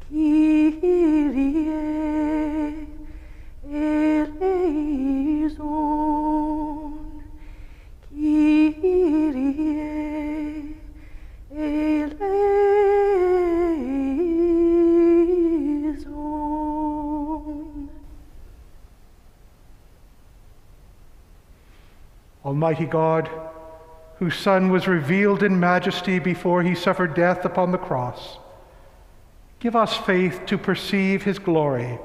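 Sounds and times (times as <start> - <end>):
person singing unaccompanied chant: 0.1 - 7.3, 11.5 - 18.0.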